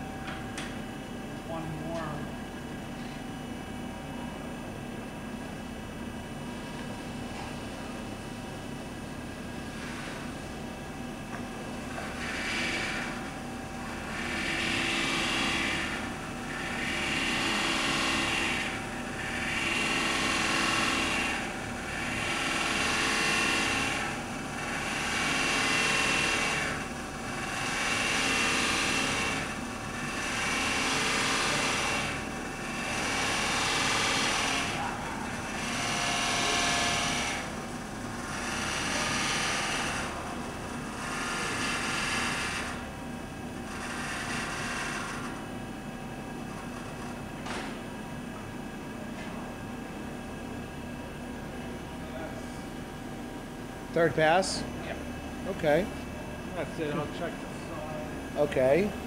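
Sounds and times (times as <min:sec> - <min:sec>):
machine hum: 0:00.0 - 0:59.0
grinder grinding: 0:14.0 - 0:42.9.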